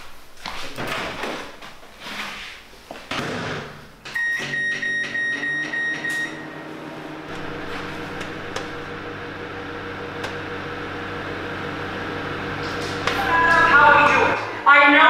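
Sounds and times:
microwave running hum: 3.8s - 14.8s.

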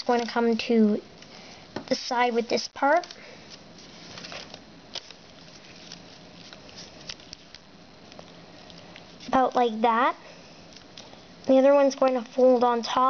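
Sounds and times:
foil paper rustling and crinkling: 3.0s - 9.8s.

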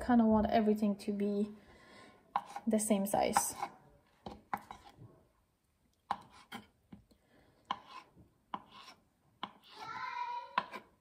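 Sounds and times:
knife chopping on wooden board: 2.4s - 2.7s, 4.3s - 4.9s, 6.1s - 6.7s, 7.7s - 9.8s, 10.6s - 10.9s.

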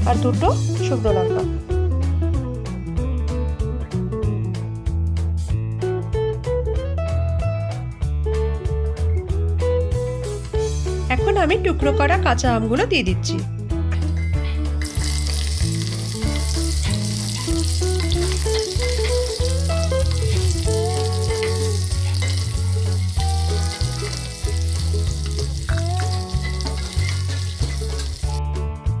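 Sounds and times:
background music with bass: 0.0s - 29.0s
food sizzling in hot oil: 14.8s - 28.4s.

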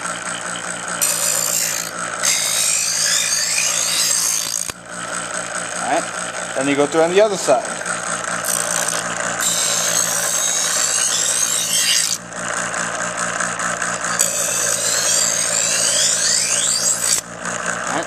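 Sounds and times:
knife blade grinding rasp: 0.0s - 6.5s, 8.4s - 12.3s, 14.0s - 17.3s
knife sharpener motor running: 0.0s - 18.0s.

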